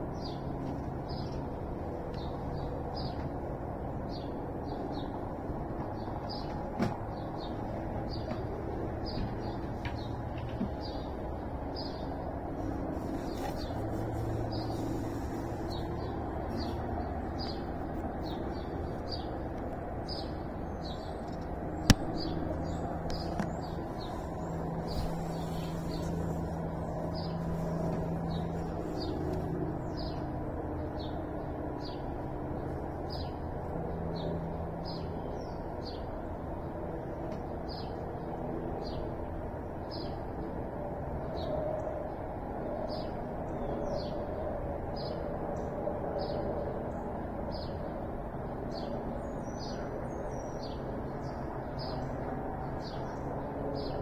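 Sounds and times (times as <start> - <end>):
steady low hum: 0.0 - 42.5
bird chirping: 9.0 - 30.2.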